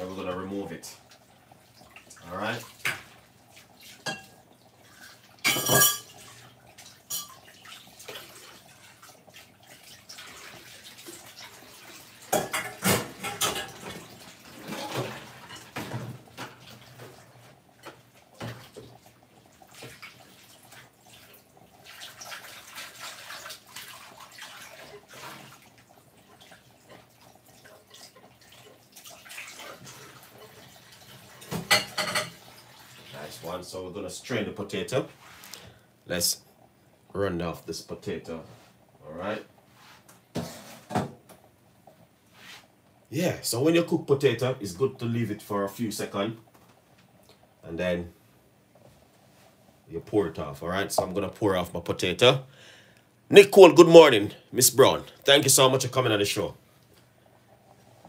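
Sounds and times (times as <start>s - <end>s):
pot boiling and bubbling: 0.0s - 58.0s.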